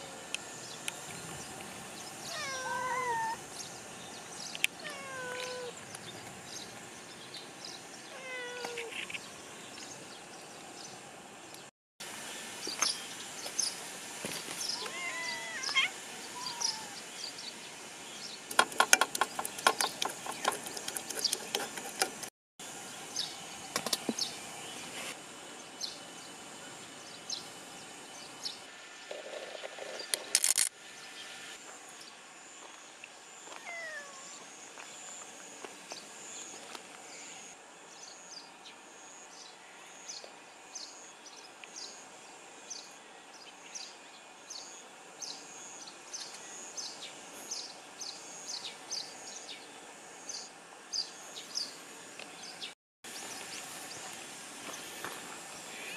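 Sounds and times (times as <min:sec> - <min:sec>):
cat meowing: 0:02.3 - 0:03.4, 0:04.8 - 0:05.8, 0:08.2 - 0:08.9, 0:14.8 - 0:17.0, 0:33.6 - 0:34.4.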